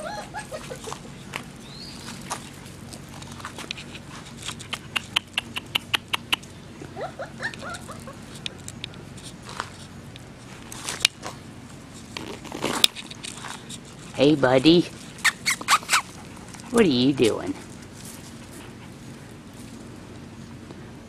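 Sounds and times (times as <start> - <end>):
puppies yipping: 0.0 - 3.0, 3.7 - 8.5, 15.0 - 16.8
puppy paws clicking on paving: 0.0 - 20.8.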